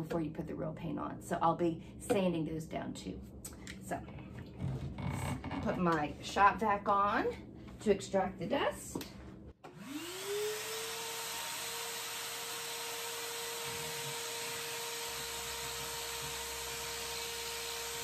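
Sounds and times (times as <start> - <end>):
shop vacuum motor whine: 9.6 - 18.0.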